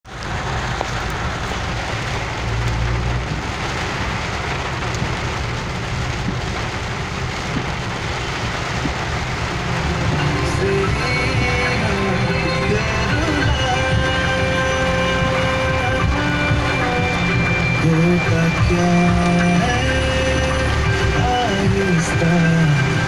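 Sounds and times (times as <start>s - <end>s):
car rumbling on wet road: 0.0s - 23.0s
heavy rain on car roof: 0.0s - 23.0s.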